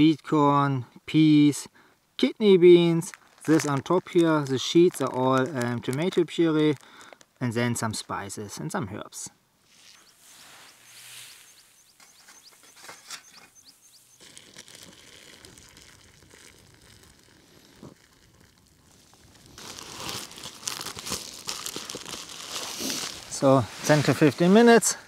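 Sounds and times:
plastic bag crinkling: 2.9s - 7.4s, 12.1s - 23.4s
water pouring into plastic bag: 3.1s - 7.3s, 14.2s - 23.4s.

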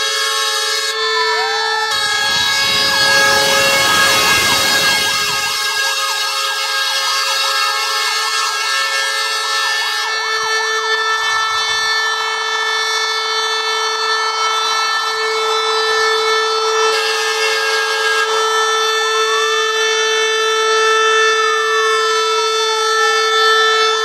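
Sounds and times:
fire engine siren: 0.0s - 24.0s.

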